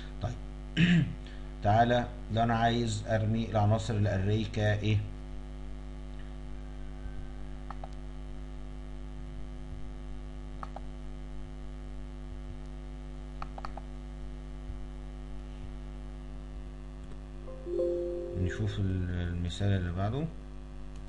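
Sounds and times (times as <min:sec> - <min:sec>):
electrical mains hum: 0:00.0 - 0:21.0
faint short clicks: 0:07.7 - 0:08.0, 0:10.6 - 0:10.9.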